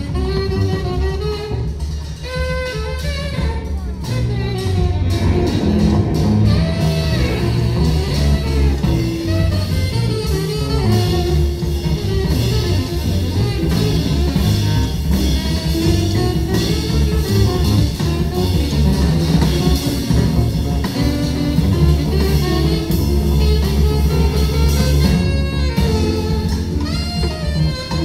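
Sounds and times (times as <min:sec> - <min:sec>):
live jazz band: 0:00.0 - 0:28.0
electric guitar line: 0:04.5 - 0:10.8.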